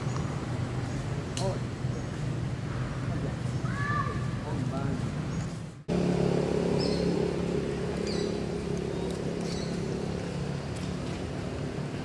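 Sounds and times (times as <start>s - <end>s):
vehicle engine running: 5.8s - 12.0s.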